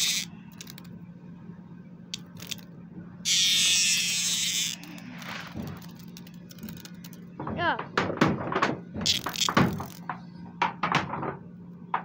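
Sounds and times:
cicada buzzing: 0.0 - 0.8, 3.3 - 7.0.

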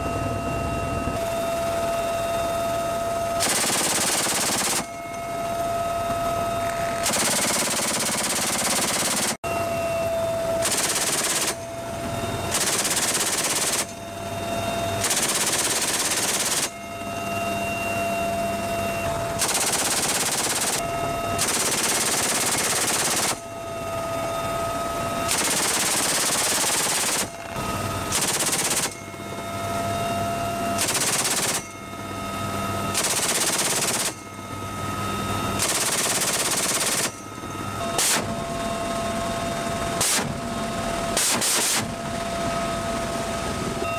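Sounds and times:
helicopter engine whine: 0.0 - 43.9
minigun firing bursts: 3.4 - 4.9, 7.0 - 9.4, 10.6 - 11.6, 12.5 - 13.9, 15.0 - 16.7, 19.4 - 20.8, 21.4 - 23.4, 25.3 - 27.4, 28.1 - 29.0, 30.8 - 31.6, 33.0 - 34.2, 35.6 - 37.2.

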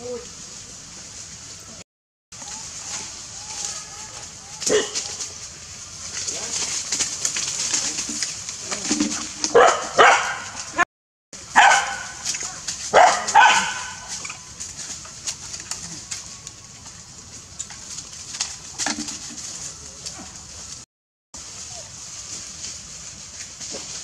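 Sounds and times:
dog barking: 4.7 - 5.0, 9.5 - 10.6, 11.6 - 12.2, 12.9 - 14.1.

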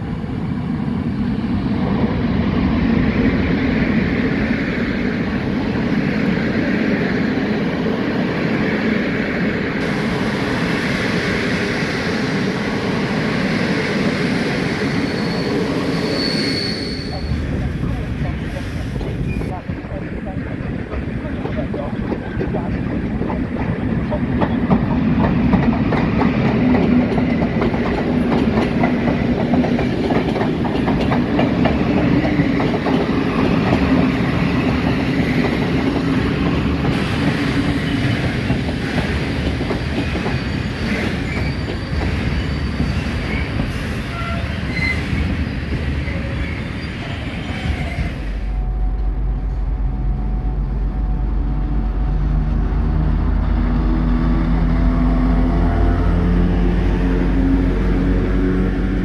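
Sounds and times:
diesel locomotive droning: 0.0 - 59.0
train wheels clattering over rail joints: 20.8 - 44.0.

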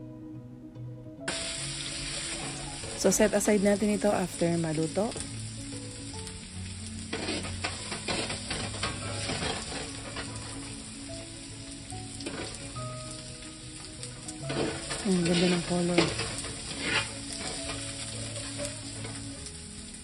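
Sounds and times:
vegetables sizzling in hot oil: 1.3 - 20.0
utensil scraping against pan: 7.0 - 10.8, 12.1 - 13.4, 14.3 - 19.3.

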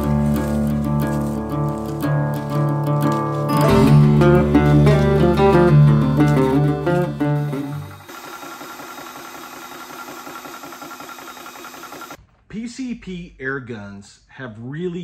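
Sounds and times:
guitar music: 0.0 - 8.0
air compressor running: 5.0 - 12.2.

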